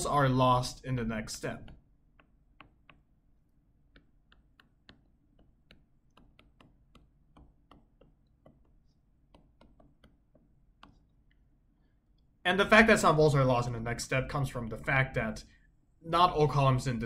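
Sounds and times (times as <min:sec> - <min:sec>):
stylus tapping on tablet screen: 0:01.4 - 0:11.5.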